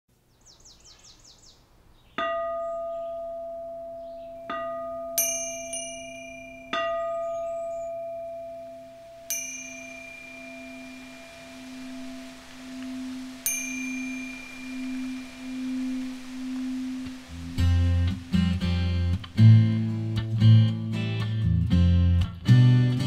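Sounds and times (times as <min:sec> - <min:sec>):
struck bells ringing: 0:02.2 - 0:18.3
low sustained tone: 0:02.2 - 0:21.0.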